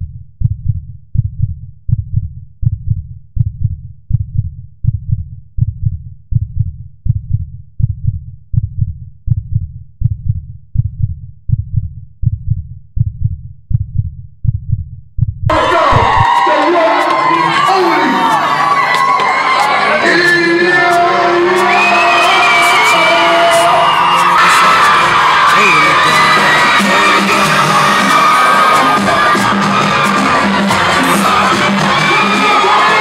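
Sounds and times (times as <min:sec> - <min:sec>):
heartbeat thumps: 0:00.0 - 0:16.4
concert crowd cheering: 0:15.5 - 0:33.0.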